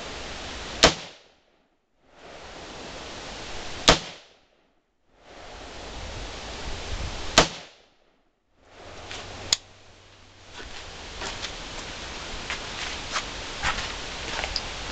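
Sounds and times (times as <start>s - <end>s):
rifle shots: 0.8s - 1.2s, 3.9s - 4.2s, 7.4s - 7.7s.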